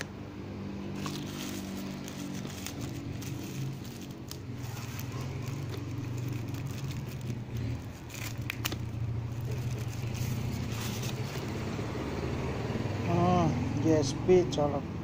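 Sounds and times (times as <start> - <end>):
plastic bag crinkling: 0.9 - 11.6.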